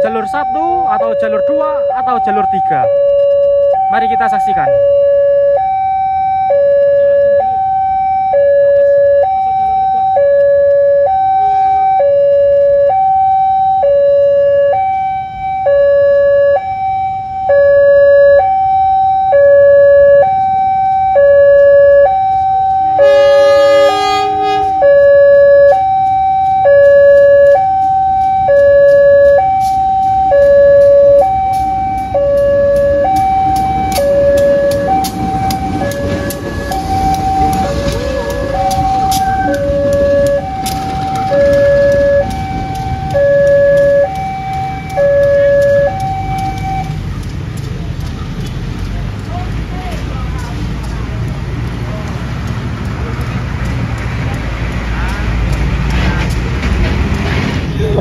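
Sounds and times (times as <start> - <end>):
level-crossing two-tone alarm: 0.0 - 47.0
locomotive rumble: 0.0 - 58.0
locomotive horn: 21.2 - 46.9
train wheels clicking over rails: 26.0 - 58.0.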